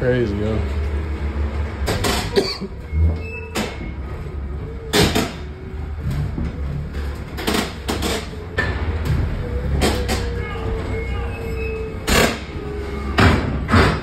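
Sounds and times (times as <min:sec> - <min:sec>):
pallet jack rolling rumble: 0:00.0 - 0:14.0
sharp knocks and clunks: 0:13.2 - 0:14.0.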